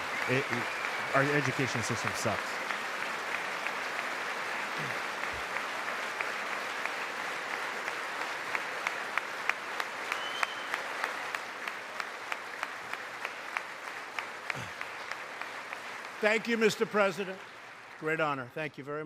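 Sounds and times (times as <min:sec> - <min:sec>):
large crowd applauding: 0:00.0 - 0:19.0.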